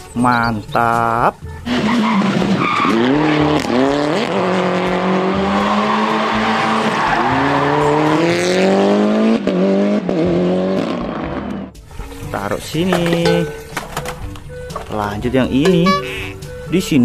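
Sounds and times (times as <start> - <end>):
car engine accelerating: 1.6 - 11.8.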